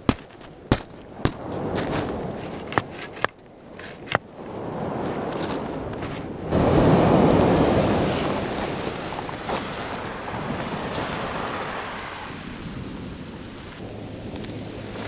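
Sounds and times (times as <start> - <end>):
surf washing on shingle beach: 0.5 - 15.0
wind on microphone: 1.0 - 15.0.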